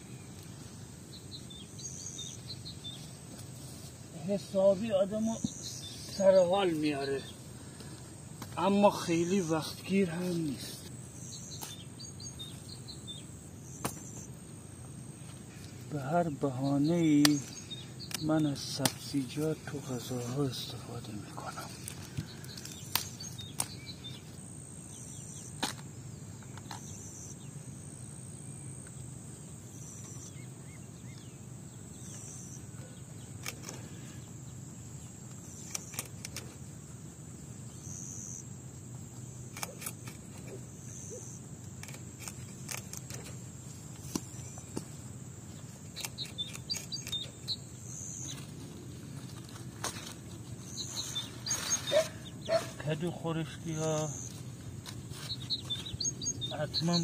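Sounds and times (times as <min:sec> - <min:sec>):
faint steady hum: 0:00.0 - 0:57.0
light clicks and rustles: 0:41.6 - 0:45.0.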